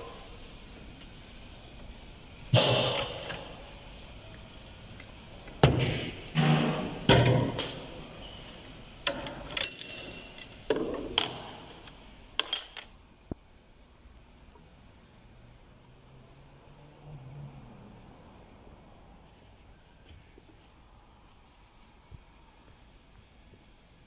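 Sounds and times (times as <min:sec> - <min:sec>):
metal parts clanking on workbench: 0:09.1 - 0:10.9, 0:12.4 - 0:12.9.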